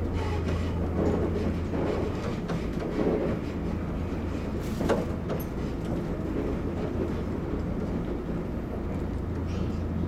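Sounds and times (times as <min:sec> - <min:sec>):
train rumbling on track: 0:00.0 - 0:10.0.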